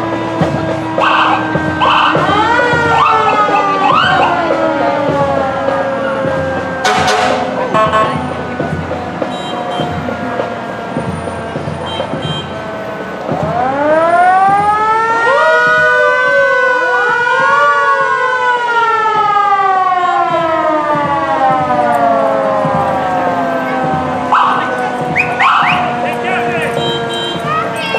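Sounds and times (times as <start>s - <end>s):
sirens wailing: 0.0s - 27.9s.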